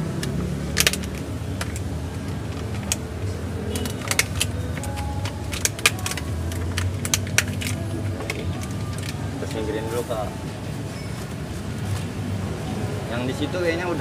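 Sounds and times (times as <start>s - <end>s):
plastic box crackling and clicking: 0.0s - 9.6s.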